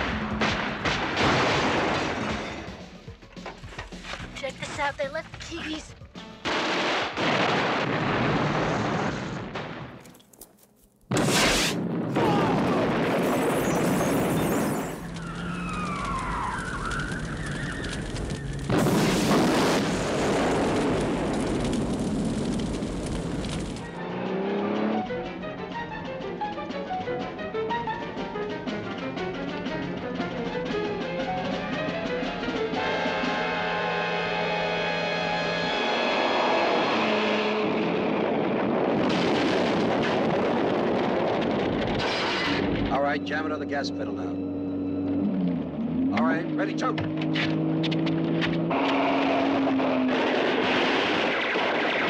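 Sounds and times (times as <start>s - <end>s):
loud car explosion: 0.0s - 2.8s, 6.4s - 10.0s, 11.1s - 24.0s, 37.6s - 42.9s, 48.8s - 52.0s
background music: 1.8s - 7.2s, 23.9s - 35.9s, 42.9s - 46.5s
fire burning: 6.4s - 24.5s, 37.8s - 42.9s, 49.6s - 52.0s.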